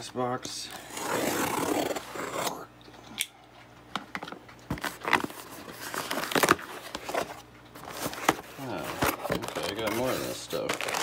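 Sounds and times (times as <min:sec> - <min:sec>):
cardboard rustling: 0:04.7 - 0:11.0.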